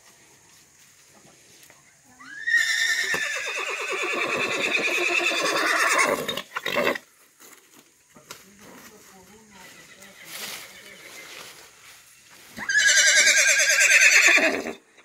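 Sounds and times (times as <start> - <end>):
horse whinnying: 2.3 - 7.0, 12.6 - 14.8.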